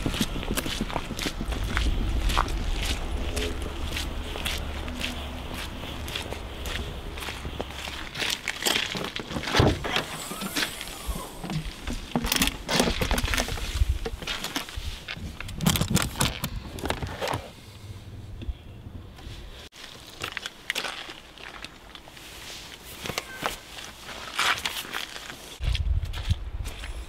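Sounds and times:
footsteps: 0.0 - 15.6.

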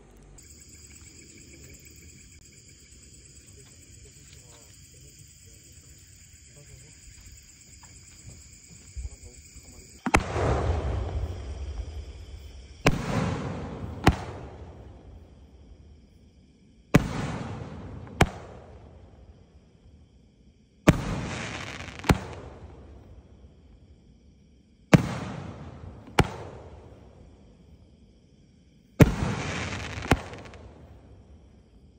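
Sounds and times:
mortar launch thump: 10.0 - 11.4
shell bursting bang: 10.0 - 15.2, 17.0 - 18.8.

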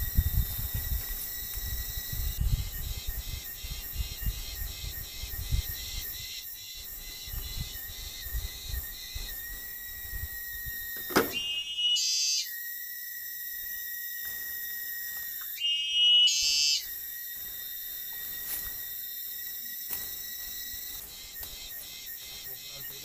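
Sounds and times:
insects droning: 0.0 - 23.0
loud whistle-like call: 11.1 - 12.6, 15.5 - 17.0.

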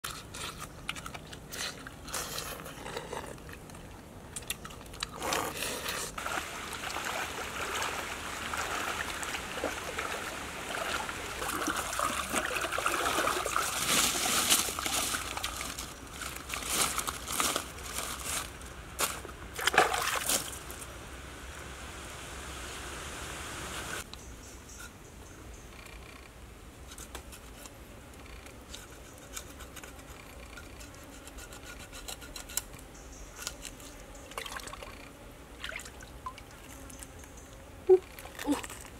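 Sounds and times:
water sloshing and splashing: 6.1 - 18.5, 19.6 - 20.7, 35.6 - 36.8.

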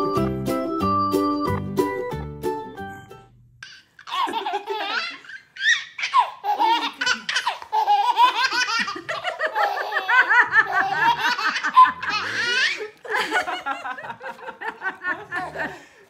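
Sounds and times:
baby giggling: 3.6 - 13.0.

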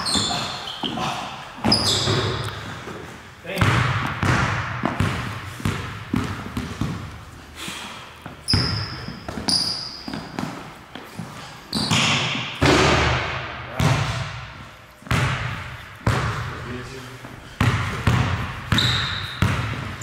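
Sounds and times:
sneaker squeaks: 0.0 - 3.0, 8.3 - 12.6, 17.6 - 20.0
basketball bouncing on hardwood floor: 3.6 - 7.2, 8.5 - 10.6, 11.8 - 14.4, 15.0 - 16.5, 17.6 - 20.0.

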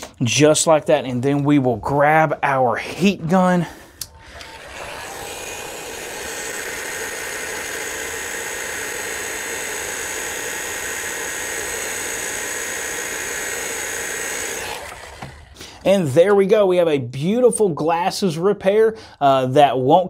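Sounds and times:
heat gun blowing: 4.0 - 15.8.

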